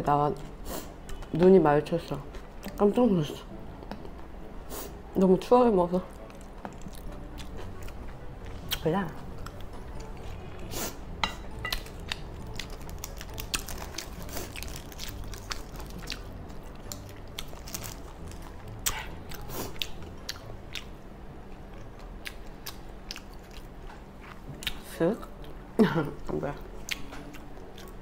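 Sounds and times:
person chewing food: 11.5s - 20.9s.

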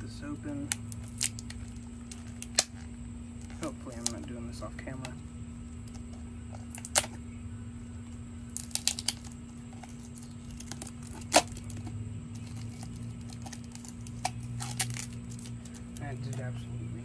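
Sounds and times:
steady low hum: 0.0s - 17.0s
knife crackling against plastic wrap: 0.6s - 4.3s, 8.5s - 16.4s.

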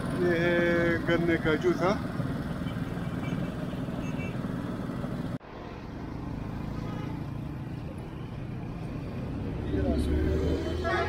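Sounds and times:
small petrol engine running: 0.0s - 5.4s
street traffic: 0.0s - 11.0s.

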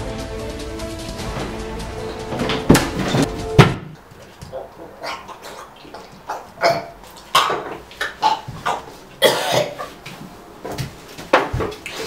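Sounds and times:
man coughing and gasping: 9.2s - 9.9s.

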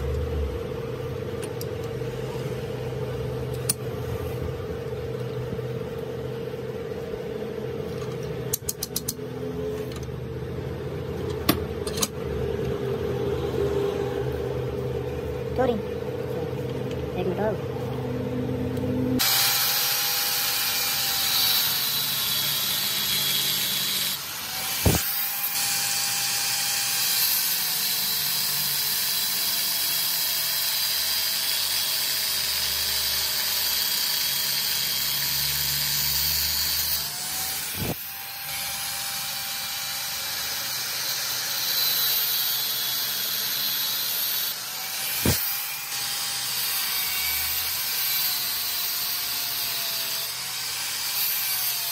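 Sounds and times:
angle grinder grinding metal: 19.2s - 51.9s.

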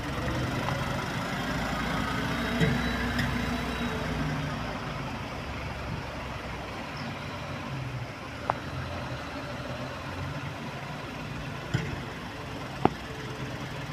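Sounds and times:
diesel truck engine pulling away: 0.0s - 13.9s.

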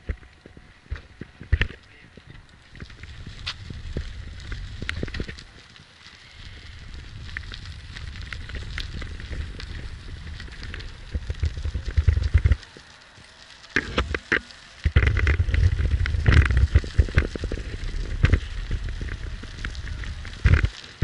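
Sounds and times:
footsteps crunching on gravel: 0.0s - 12.9s
wind rumble on microphone: 0.0s - 12.9s, 13.6s - 21.0s.

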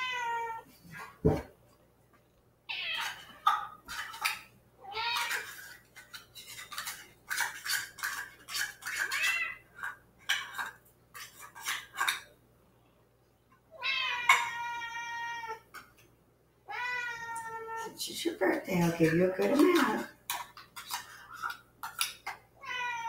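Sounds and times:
cats meowing: 0.0s - 1.1s, 2.7s - 3.8s, 4.8s - 5.8s, 8.9s - 9.6s, 13.7s - 15.8s, 16.7s - 17.9s, 22.6s - 23.0s.

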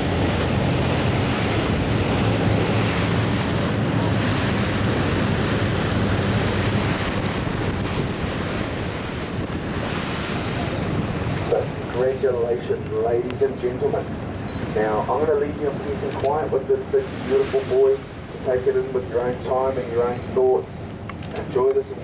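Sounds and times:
wind buffeting microphone: 0.0s - 13.3s
boat engine hum: 0.0s - 22.0s
open sea wash: 0.0s - 22.0s.

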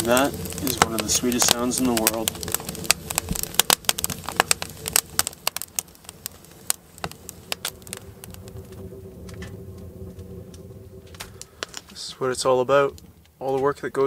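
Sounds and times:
low steady fire rush: 0.0s - 14.0s
wood fire crackling and popping: 0.0s - 14.0s.

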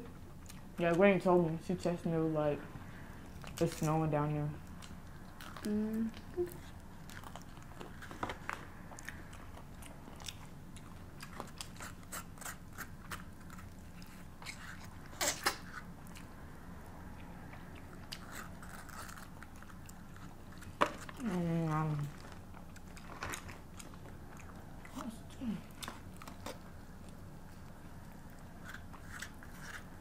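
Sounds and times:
crunching fried chicken: 6.6s - 30.0s.

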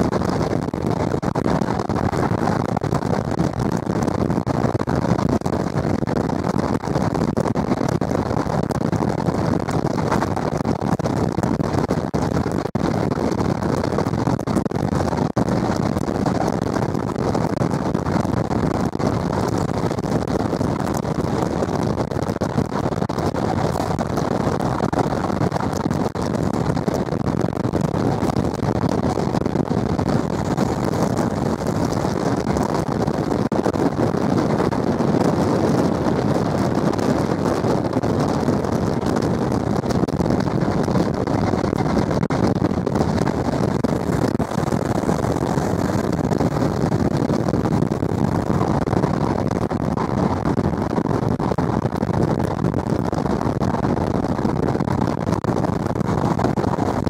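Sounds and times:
wind on microphone: 0.0s - 57.0s.

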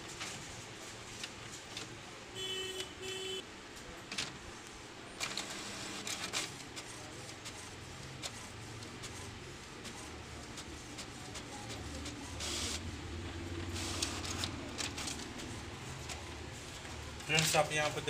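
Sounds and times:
printer mechanism whirring: 3.9s - 18.0s.

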